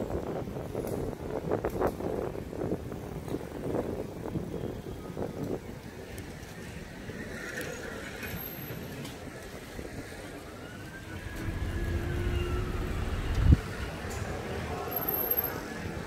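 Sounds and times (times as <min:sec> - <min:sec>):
city street traffic: 0:00.0 - 0:16.0
vehicle passing close: 0:10.9 - 0:16.0.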